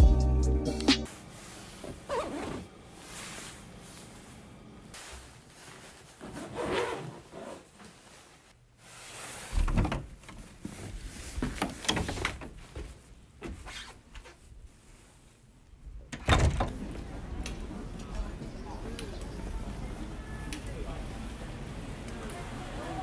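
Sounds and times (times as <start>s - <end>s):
suitcase sliding rub: 1.2s - 3.7s, 5.0s - 9.6s.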